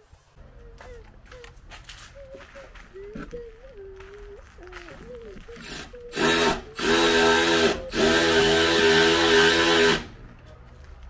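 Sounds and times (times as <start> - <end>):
cordless drill whining: 5.6 - 10.1.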